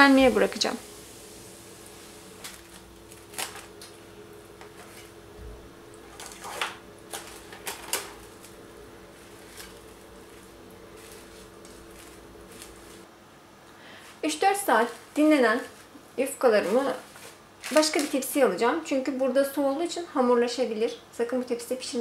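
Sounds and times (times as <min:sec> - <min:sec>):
faint steady hum: 0:00.0 - 0:22.0
cling film crinkling: 0:01.2 - 0:05.3, 0:05.9 - 0:13.1, 0:14.2 - 0:18.7.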